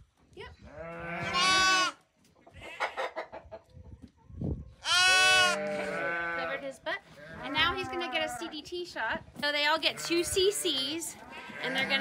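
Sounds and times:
lambs bleating: 0:00.8 - 0:02.0, 0:04.8 - 0:06.6, 0:09.9 - 0:12.0.

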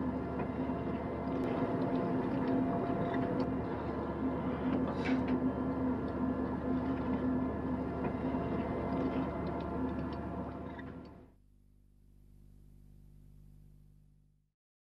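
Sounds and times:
ship engine drone: 0:00.0 - 0:11.4.

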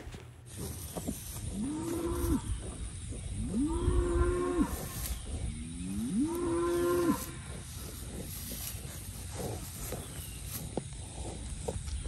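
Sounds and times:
cow mooing: 0:01.5 - 0:02.6, 0:03.4 - 0:05.1, 0:05.8 - 0:07.6.

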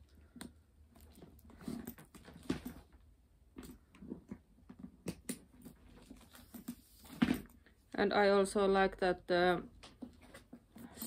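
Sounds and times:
handbag rustling: 0:01.0 - 0:03.0.

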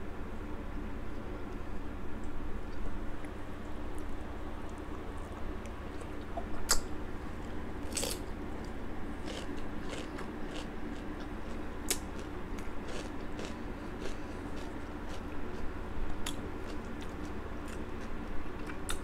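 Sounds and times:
steady low hum: 0:00.0 - 0:19.0
chewing crunchy cucumber: 0:07.8 - 0:19.0.

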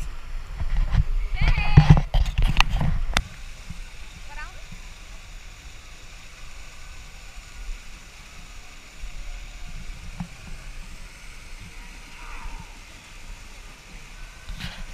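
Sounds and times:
fountain jets splashing: 0:03.3 - 0:12.1.

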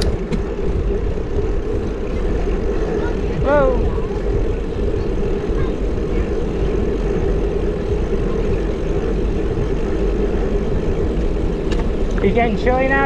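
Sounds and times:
bicycle tyre road noise: 0:00.0 - 0:13.0
wind rumble on microphone: 0:00.0 - 0:13.0.

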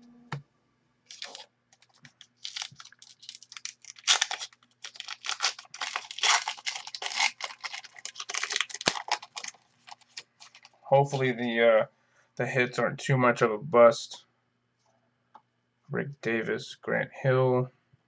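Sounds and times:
wrapper crinkling and tearing: 0:01.1 - 0:11.2.

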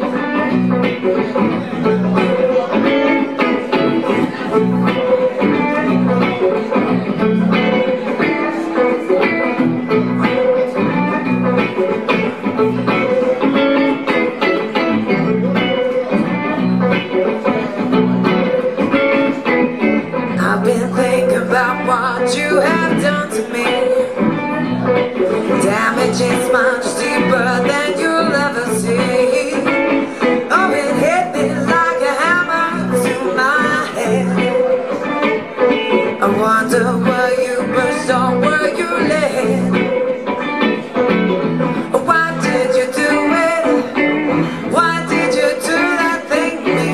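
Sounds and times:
electric guitar playing: 0:00.0 - 0:46.9
woman singing into microphone: 0:20.2 - 0:40.8, 0:41.6 - 0:46.9.

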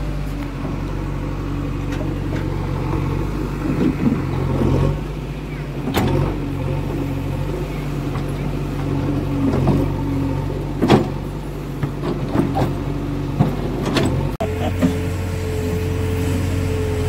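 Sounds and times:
diesel engine running: 0:00.0 - 0:17.0.

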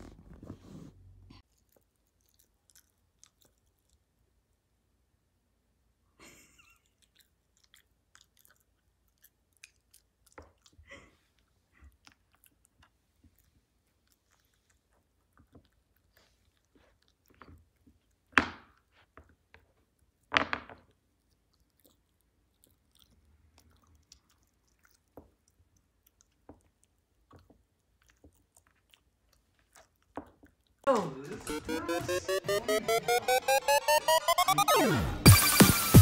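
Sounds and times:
puppy chewing a chew ring: 0:01.4 - 0:04.1, 0:06.9 - 0:20.2, 0:20.9 - 0:30.9.

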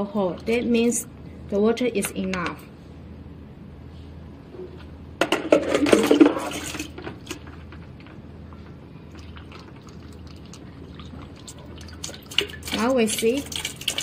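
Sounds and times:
water pouring into a funnel: 0:09.1 - 0:14.0.

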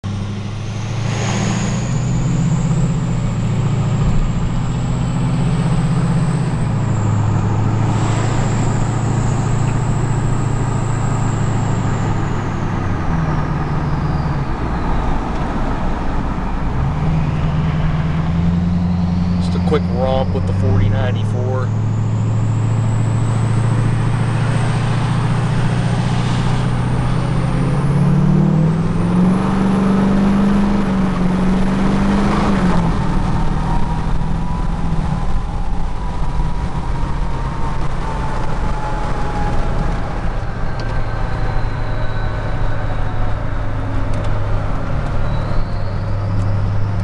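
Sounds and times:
diesel engine drone: 0:00.0 - 0:47.0
road noise: 0:00.0 - 0:47.0
turbo whistle: 0:00.6 - 0:04.1, 0:06.1 - 0:15.3.

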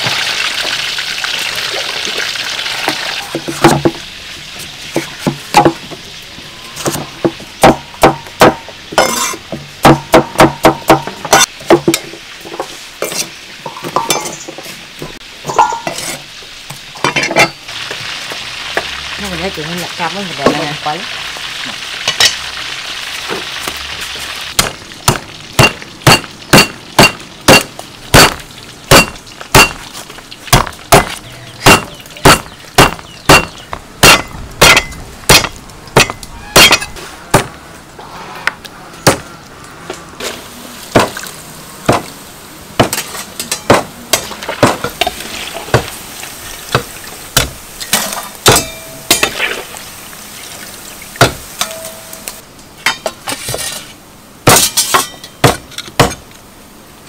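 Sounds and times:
food sizzling in hot oil: 0:00.0 - 0:37.0, 0:40.2 - 0:52.4
knife chopping meat on wooden block: 0:09.8 - 0:11.9, 0:24.6 - 0:29.8, 0:30.5 - 0:36.7.

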